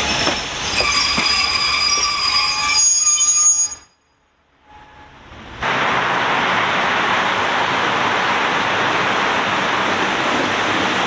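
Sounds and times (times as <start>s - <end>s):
loud rushing noise: 5.6s - 11.0s.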